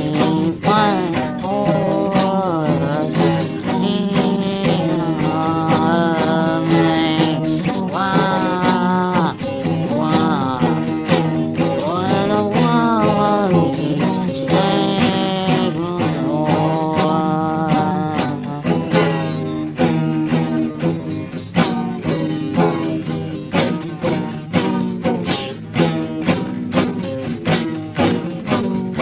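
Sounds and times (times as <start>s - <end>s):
person singing: 0.0s - 29.0s
plucked guitar: 0.0s - 29.0s.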